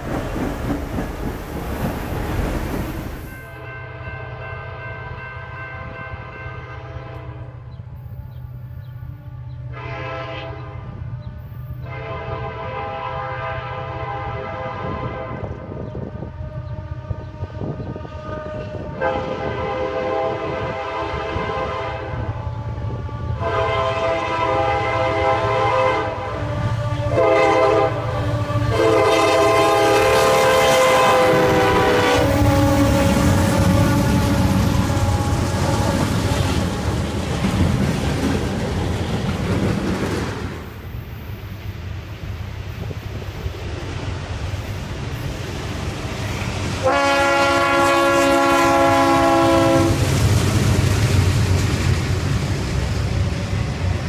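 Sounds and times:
diesel locomotive rumble: 0:00.0 - 0:03.3, 0:07.1 - 0:54.0
train air horn blasts: 0:03.3 - 0:36.9, 0:46.8 - 0:50.1.

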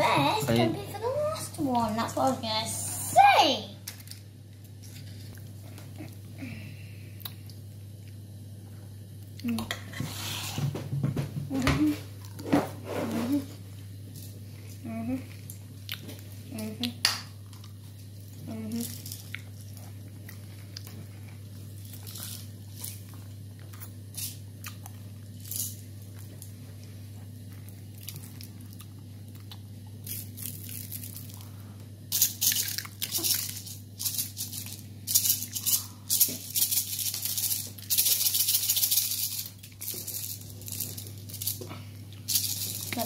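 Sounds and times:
steady low hum: 0:00.0 - 0:43.0
plastic shaker rattling: 0:32.1 - 0:41.6, 0:42.3 - 0:43.0.

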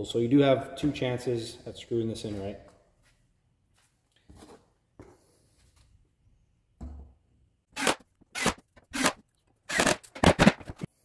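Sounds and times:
cordless drill driving screws: 0:07.8 - 0:10.5.

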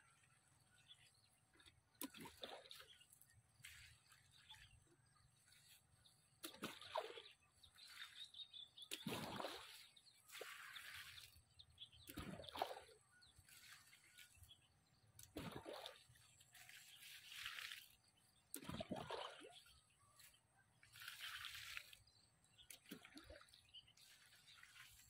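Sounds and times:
water splashing onto vegetables: 0:08.8 - 0:11.4, 0:15.2 - 0:19.6.

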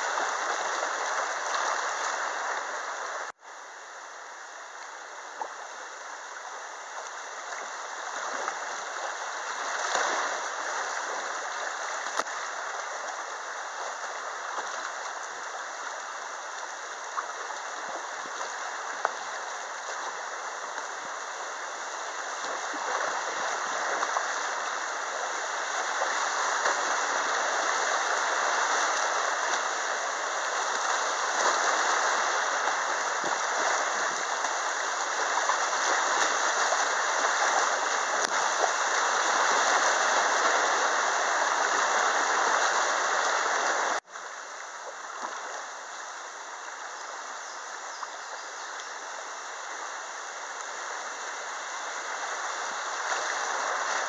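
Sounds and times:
whitewater rushing: 0:00.0 - 0:03.4, 0:05.2 - 0:47.3, 0:49.0 - 0:54.0.

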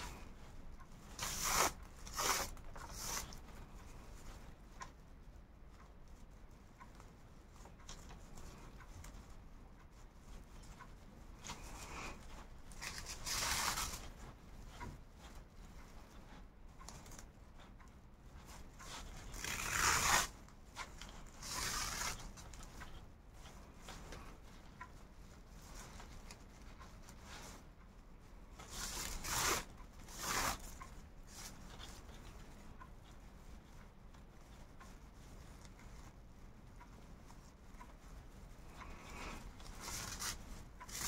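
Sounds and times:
yarn swishing through fabric: 0:00.0 - 0:41.0
faint handling rustles: 0:20.4 - 0:41.0.

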